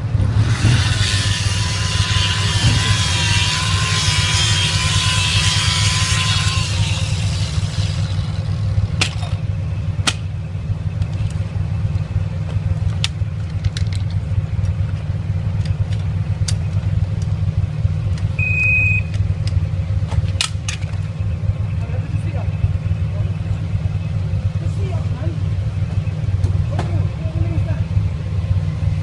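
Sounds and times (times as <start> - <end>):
engine idling: 0.0 - 29.0
short high beep: 18.4 - 19.1.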